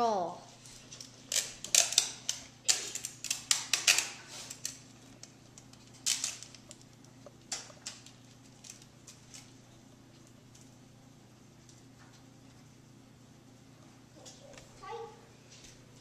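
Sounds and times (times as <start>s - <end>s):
sticky tape crackling: 0.6s - 10.8s.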